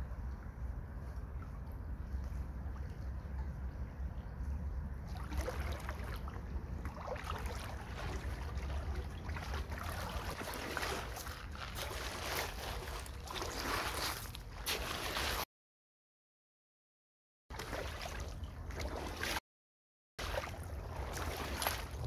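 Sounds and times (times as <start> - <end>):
wind rumble on microphone: 0.0 - 14.6, 20.5 - 22.0
boots wading through stream: 5.0 - 15.5, 17.5 - 19.4, 20.2 - 22.0.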